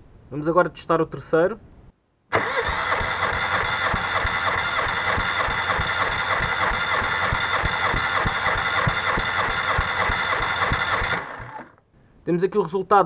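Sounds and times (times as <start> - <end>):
starter motor cranking engine: 2.3 - 11.8.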